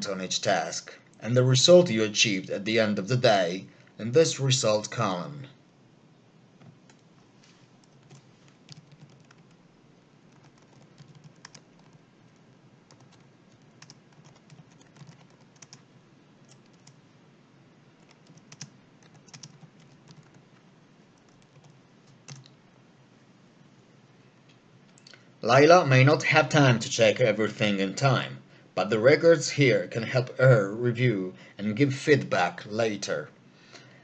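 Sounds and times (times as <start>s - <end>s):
keyboard typing: 6.6s - 17.0s, 18.0s - 22.6s.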